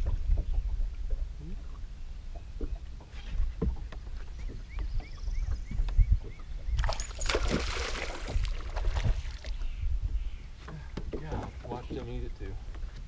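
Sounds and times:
water lapping against boat hull: 0.0 - 13.0
bird chirping: 4.2 - 7.2.

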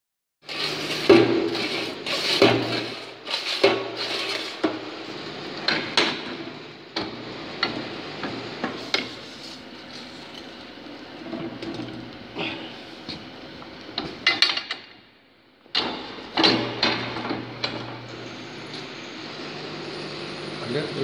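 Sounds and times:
metal scraping on metal: 0.4 - 4.6.

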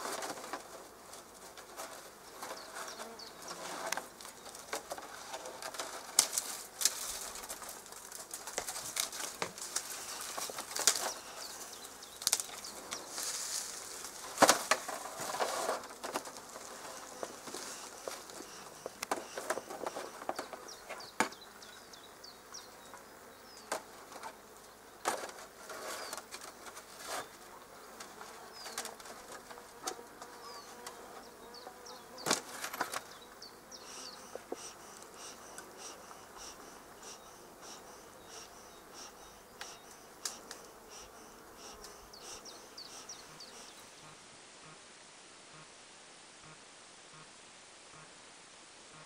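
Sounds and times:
bee swarm buzzing: 6.6 - 24.4, 27.5 - 44.8.

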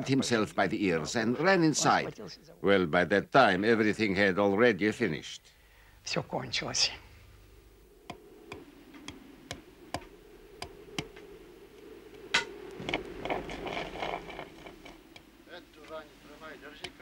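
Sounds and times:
steady low hum: 4.0 - 17.0
rasping scraping: 12.4 - 17.0.

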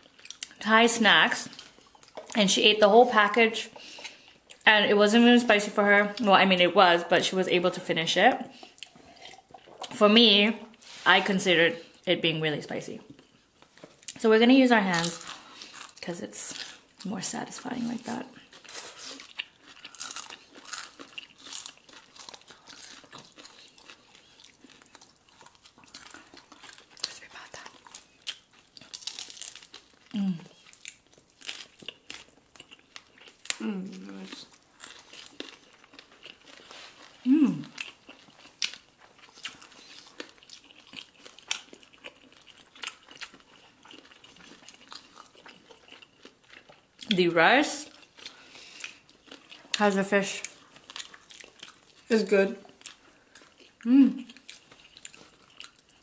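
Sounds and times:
people chewing: 0.0 - 0.7, 1.3 - 2.9, 3.6 - 4.6, 8.4 - 10.0, 14.9 - 56.0
crunching crispy food: 14.9 - 17.1, 18.4 - 47.1, 47.7 - 56.0.

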